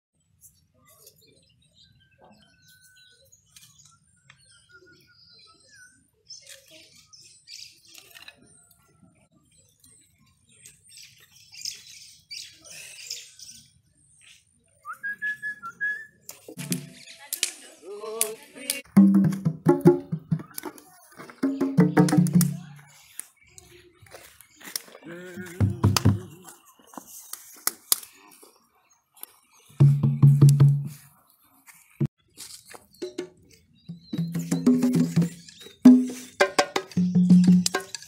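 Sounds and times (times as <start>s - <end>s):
faint bird chirps: 0.2s - 16.2s
hand strikes on drums: 19.0s - 20.5s, 21.4s - 22.6s, 29.8s - 30.9s, 33.9s - 38.0s.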